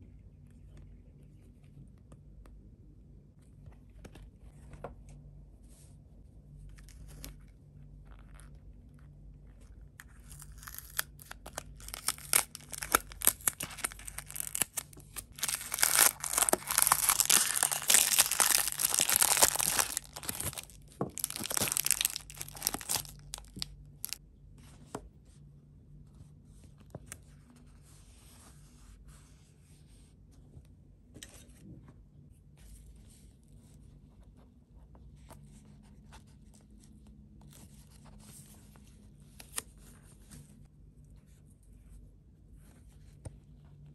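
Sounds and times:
packaging tearing and crinkling: 10.2s - 24.2s.

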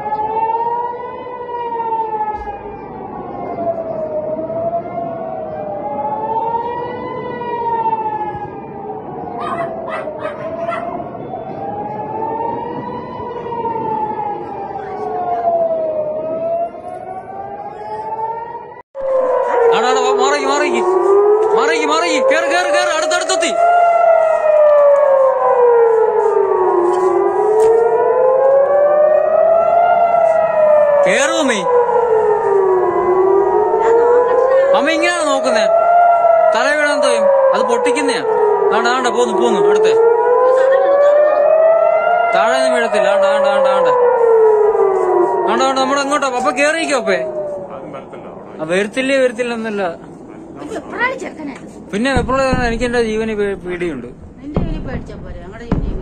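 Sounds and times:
air-raid siren wailing: 0.0s - 56.0s
dog barking: 9.4s - 11.0s.

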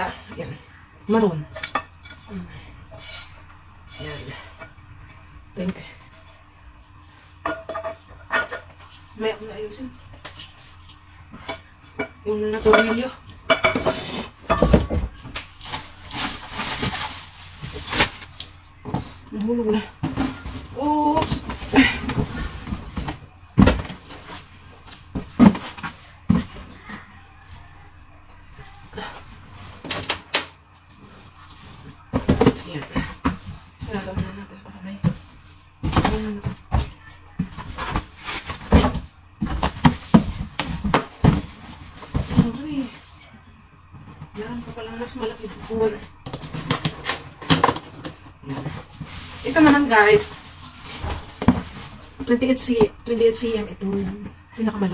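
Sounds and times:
bubble wrap rustling: 15.5s - 18.4s
cardboard boxes thumping and scraping: 20.0s - 26.8s, 32.1s - 42.9s, 48.5s - 52.8s.

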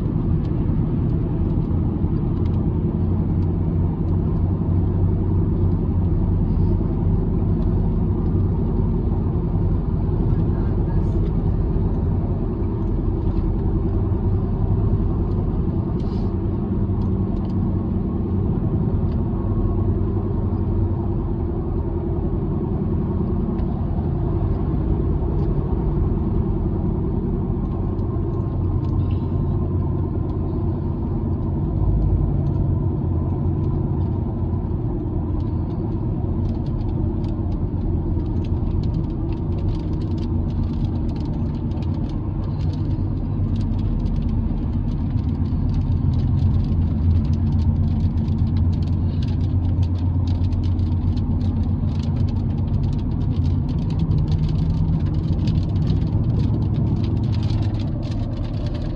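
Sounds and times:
car engine and road rumble: 0.0s - 58.9s
raindrops ticking on car: 33.5s - 58.9s.

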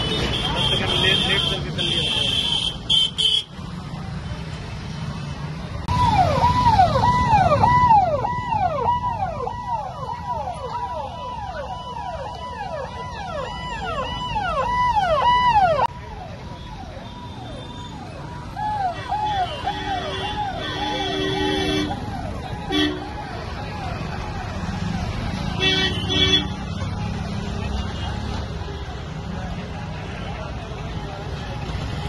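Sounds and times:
vehicle siren wailing: 5.9s - 27.3s.

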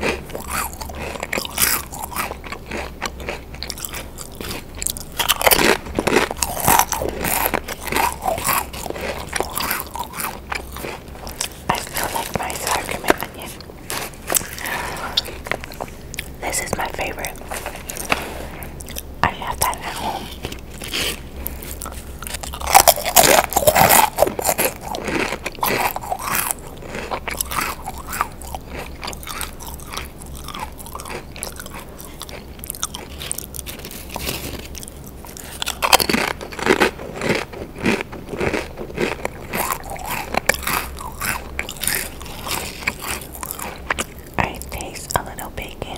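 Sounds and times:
crunching potato crisps: 0.0s - 45.9s.

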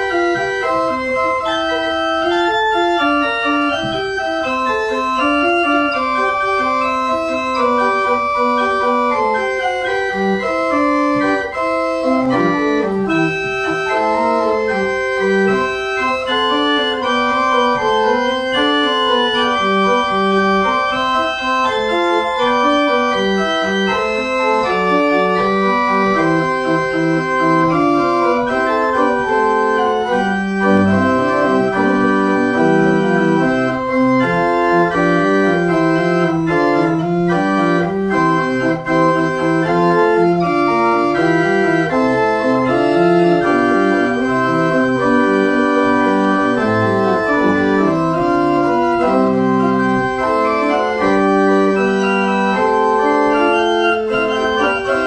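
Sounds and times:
pipe organ playing: 0.0s - 55.0s.

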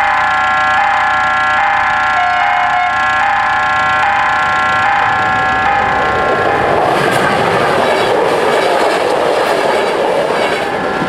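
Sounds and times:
level crossing bells ringing: 0.0s - 6.7s.

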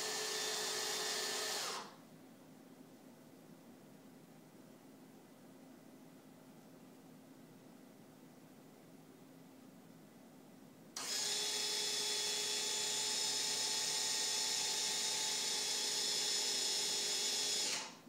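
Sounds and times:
small electric motor whining: 0.0s - 1.9s, 11.0s - 18.0s.

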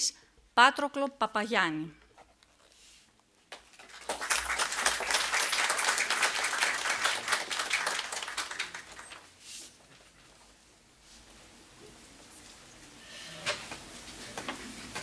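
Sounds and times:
audience applause: 3.7s - 9.3s.

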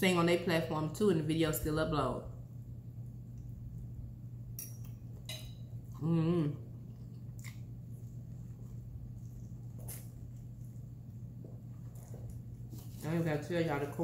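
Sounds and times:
steady low hum: 0.0s - 14.0s
person humming mmm: 6.0s - 6.7s
person chewing: 6.8s - 12.8s.

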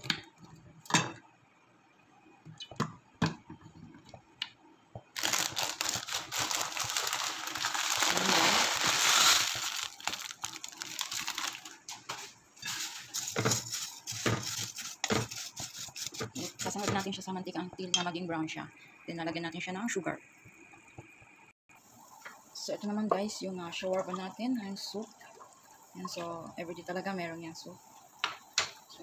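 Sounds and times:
plastic bag crinkling: 5.2s - 12.1s
noodles poured into a pot: 5.2s - 16.7s
wooden spoon knocking and scraping: 12.0s - 17.2s.

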